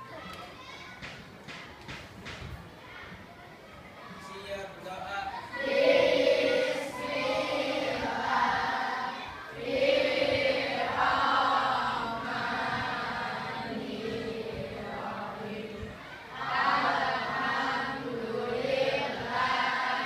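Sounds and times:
children singing in unison: 0:05.4 - 0:20.0.

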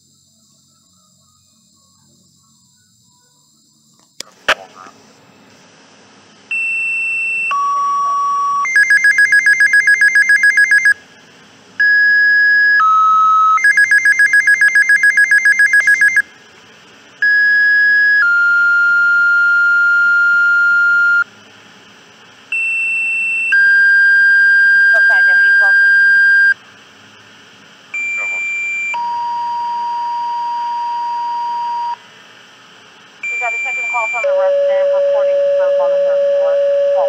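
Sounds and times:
two-tone paging tones: 0:06.5 - 0:11.0, 0:11.8 - 0:16.2
pager alert rapid beeping: 0:08.7 - 0:11.0, 0:13.5 - 0:16.2.

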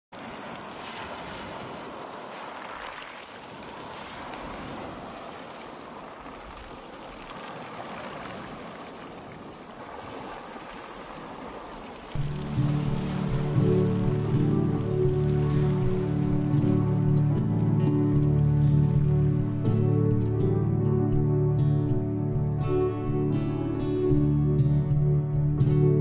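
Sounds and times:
waves breaking on stony beach: 0:00.1 - 0:19.8
music with held notes: 0:12.2 - 0:26.0.

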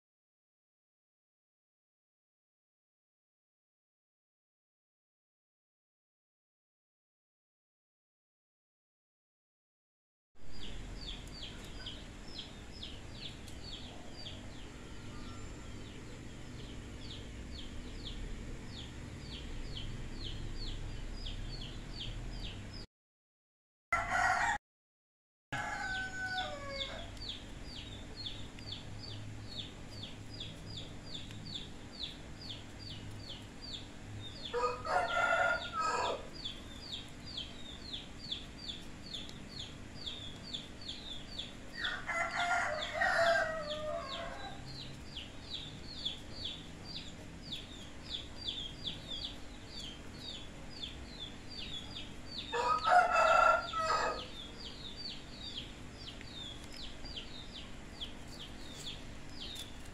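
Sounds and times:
rooster crowing: 0:14.0 - 0:16.0, 0:23.9 - 0:24.6, 0:25.6 - 0:27.1, 0:34.5 - 0:36.3, 0:41.8 - 0:44.6, 0:52.4 - 0:54.4.

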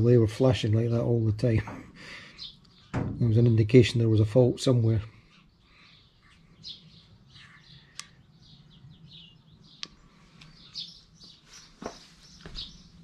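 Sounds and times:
birds chirping faintly: 0:00.0 - 0:13.0
sharp clicks: 0:07.9 - 0:08.2, 0:09.7 - 0:10.6.

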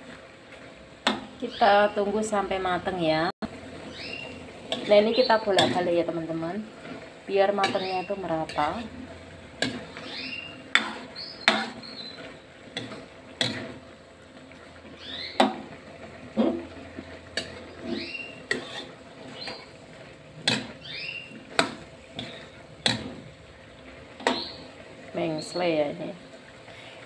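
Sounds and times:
metal ladle scraping a wok: 0:06.8 - 0:13.8, 0:17.3 - 0:19.8.

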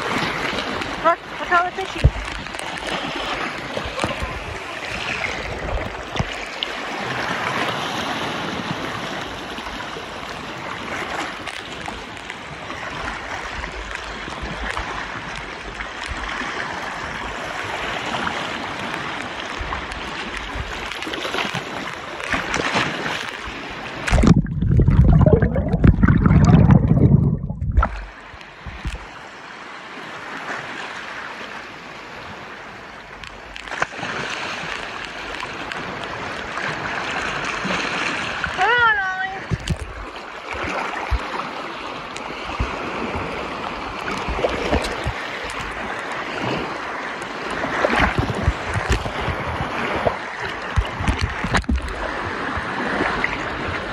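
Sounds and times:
seawater sloshing and splashing: 0:00.0 - 0:53.9
muffled underwater rumble: 0:00.9 - 0:06.6, 0:24.0 - 0:29.2, 0:38.5 - 0:46.8, 0:47.5 - 0:53.9.

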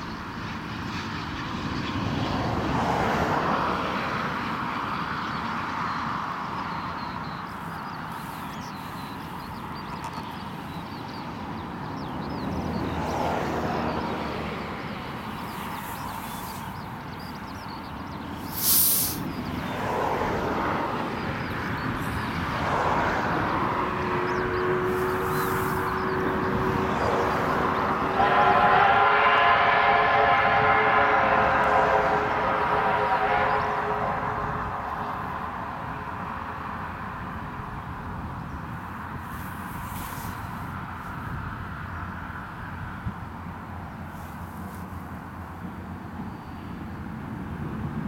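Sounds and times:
steam locomotive hissing and working: 0:18.3 - 0:19.3
loud burst of steam hiss: 0:18.4 - 0:19.4
steam whistle: 0:28.1 - 0:34.3.

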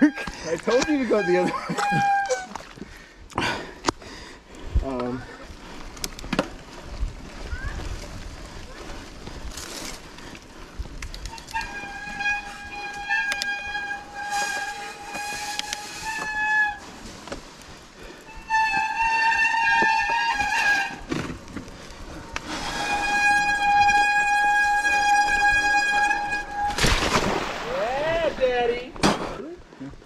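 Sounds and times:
tyres rolling on dirt trail: 0:00.0 - 0:29.4
bike brakes squealing: 0:00.1 - 0:02.5, 0:11.2 - 0:17.0, 0:18.2 - 0:21.3, 0:22.1 - 0:26.8.

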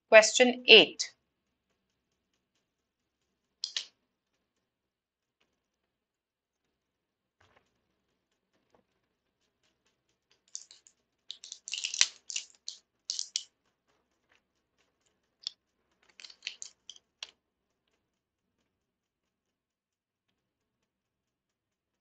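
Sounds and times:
computer keyboard typing: 0:10.6 - 0:13.4, 0:16.2 - 0:16.9.

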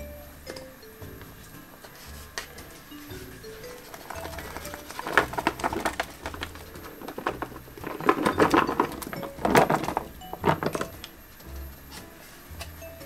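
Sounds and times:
vegetables dropping into metal pot: 0:03.9 - 0:11.2.

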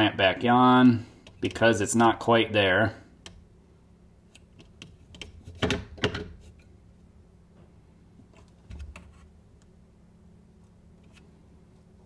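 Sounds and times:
sharp clicks and knocks: 0:04.3 - 0:06.7.

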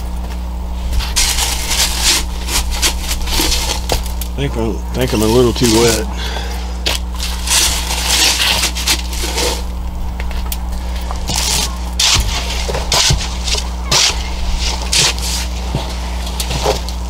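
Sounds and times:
steady low hum: 0:00.0 - 0:17.0
metal pipe crunching in wet concrete: 0:06.8 - 0:09.8, 0:11.2 - 0:17.0.

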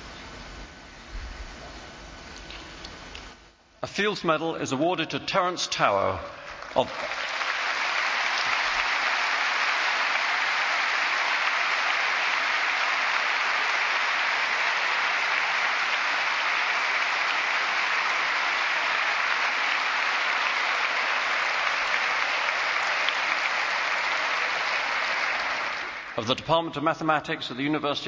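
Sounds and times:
audience applauding: 0:06.3 - 0:26.4.

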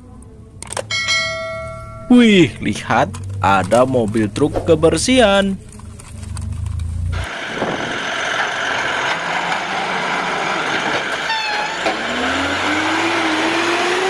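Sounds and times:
garbage truck engine and hydraulics: 0:00.0 - 0:14.0
whine rising in pitch: 0:07.1 - 0:14.0
short high tone: 0:11.2 - 0:12.2.

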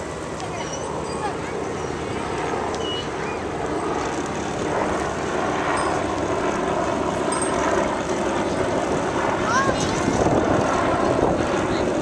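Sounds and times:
wind buffeting microphone: 0:03.4 - 0:12.0.

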